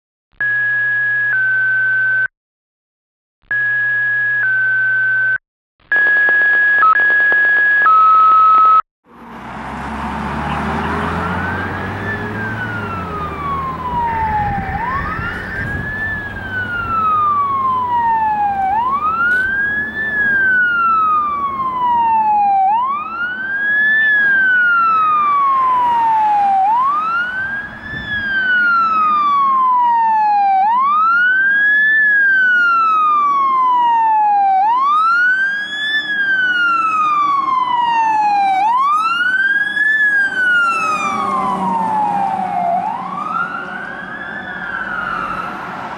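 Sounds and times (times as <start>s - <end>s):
fire engine siren wailing: 5.9s - 45.9s
diesel engine: 9.0s - 45.9s.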